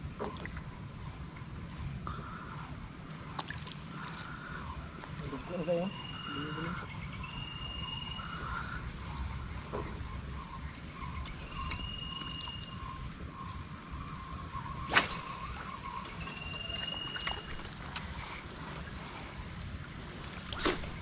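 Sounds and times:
high insect drone: 0.0 - 21.0
short whistled call: 11.5 - 13.0, 14.8 - 17.6
fishing rod swishing: 14.8 - 16.2, 20.4 - 21.0.

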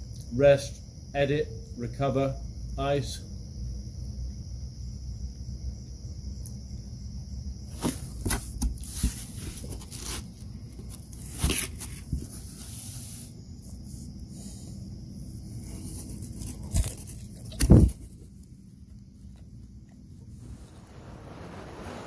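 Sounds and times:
night insects chirring: 0.0 - 22.0
cardboard box rustling: 7.7 - 14.1, 15.2 - 18.4.

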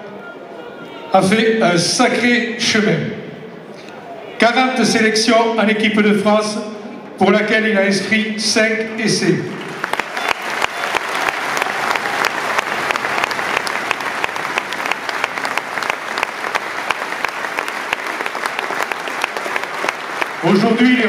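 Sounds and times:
stadium crowd applauding: 9.4 - 21.0.

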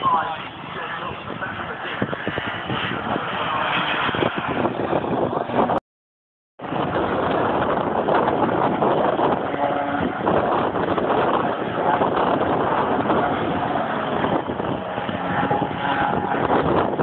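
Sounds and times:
wind noise on microphone: 0.0 - 5.8, 6.6 - 17.0
race car engine passing: 8.2 - 17.0.

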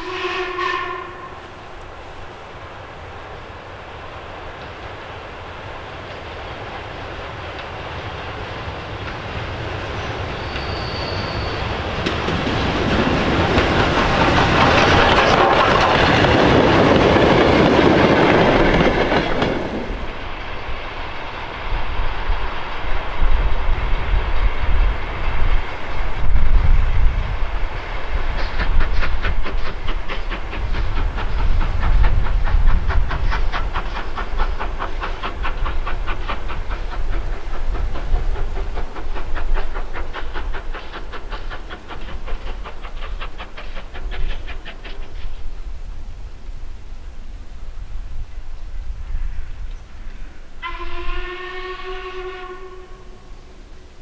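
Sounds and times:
steam locomotive wheels rumbling: 0.0 - 54.0
locomotive exhaust beat: 26.5 - 45.4.

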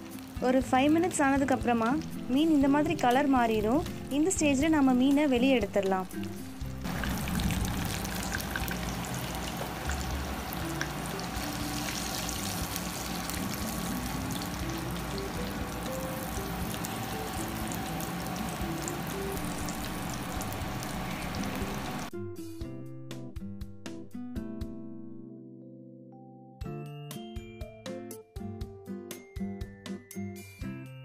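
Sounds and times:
oil sizzling in frying pan: 0.0 - 5.1, 6.1 - 22.1
faint background music: 0.0 - 22.2.

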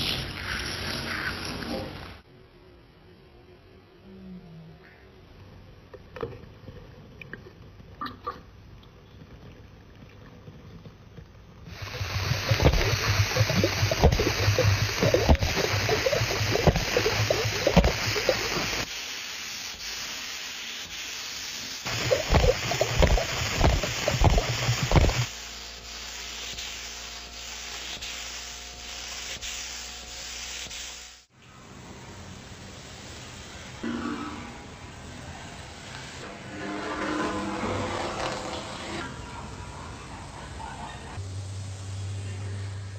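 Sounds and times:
paint spray gun hissing: 11.7 - 31.3
steady background noise: 31.4 - 42.9.

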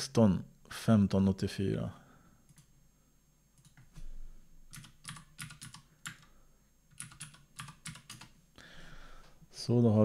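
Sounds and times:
keyboard keys clicking: 4.7 - 6.3, 6.9 - 8.3.

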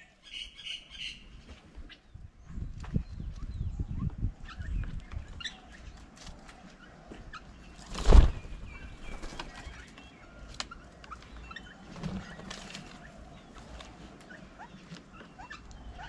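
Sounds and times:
bird wing flutter: 7.8 - 9.7.

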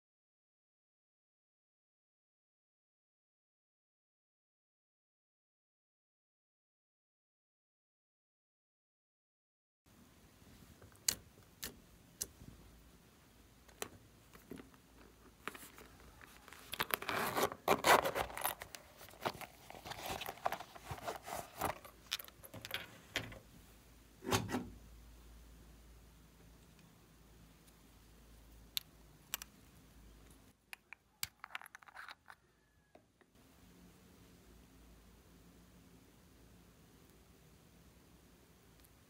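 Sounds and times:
zipper being pulled open: 16.2 - 22.0
metal zipper pull jangling: 16.6 - 19.7.

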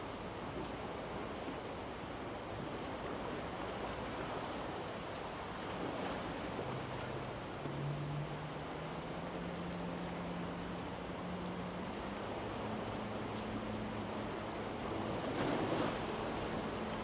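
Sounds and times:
sea surf: 0.0 - 17.0.

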